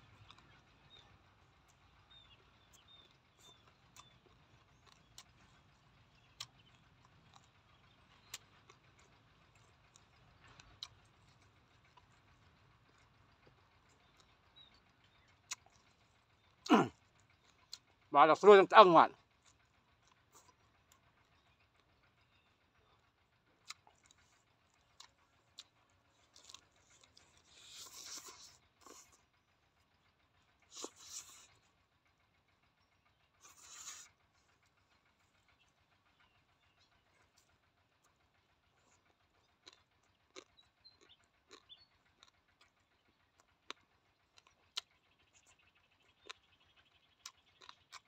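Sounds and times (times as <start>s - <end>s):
crunchy chewing: 0.0s - 48.0s
faint outdoor background: 0.0s - 48.0s
quiet eating sounds: 0.0s - 48.0s.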